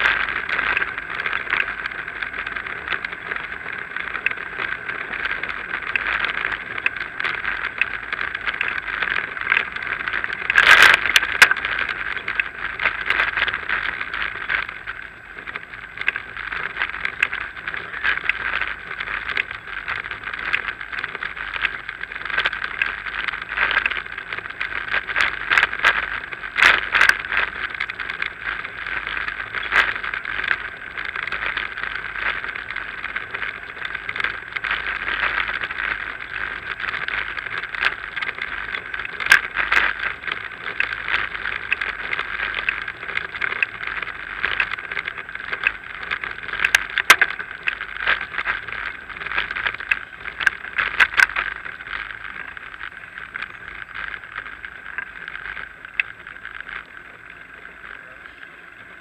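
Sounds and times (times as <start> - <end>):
bicycle rattles and clicks: 0.0 - 59.0.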